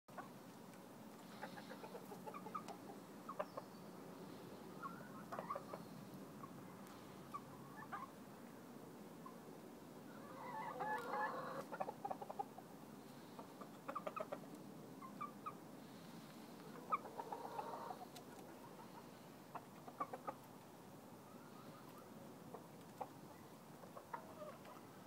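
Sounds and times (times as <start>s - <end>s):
chickens clucking: 0.1s - 8.3s, 10.1s - 25.0s
loud chicken calls: 10.1s - 12.5s, 16.6s - 19.2s.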